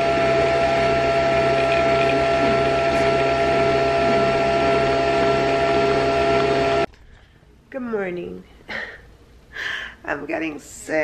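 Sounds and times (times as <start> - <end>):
fast buzzing rattle: 0.0 - 6.9
small electric motor whining: 0.0 - 6.9.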